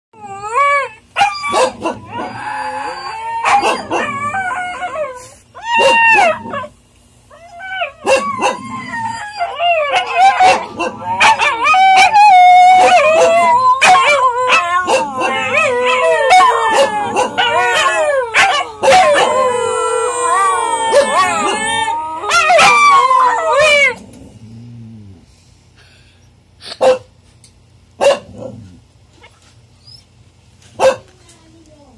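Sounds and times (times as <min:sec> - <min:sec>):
puppies howling: 0:00.2 - 0:06.7, 0:07.3 - 0:24.1.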